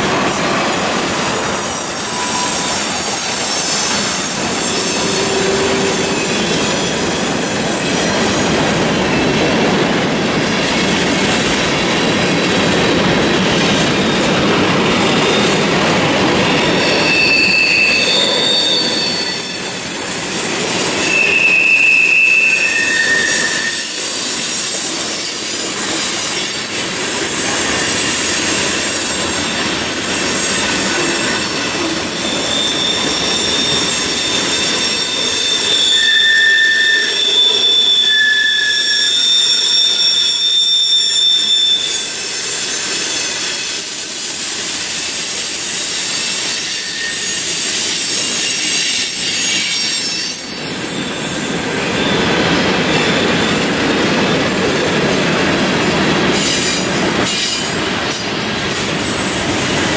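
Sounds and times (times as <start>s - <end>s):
train wheels rumbling on rails: 0.0s - 59.9s
wheel squeal: 1.3s - 8.6s, 16.3s - 55.1s.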